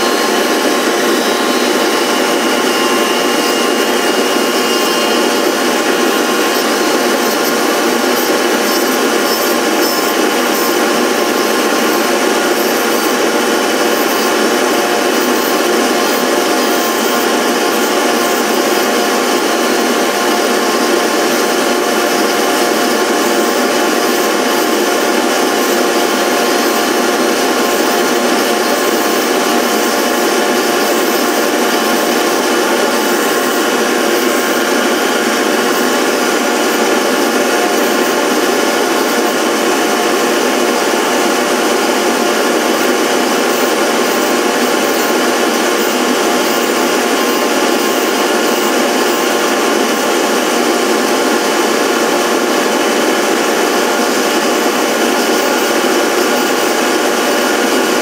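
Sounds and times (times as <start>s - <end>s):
power tool motor running: 0.0s - 58.0s.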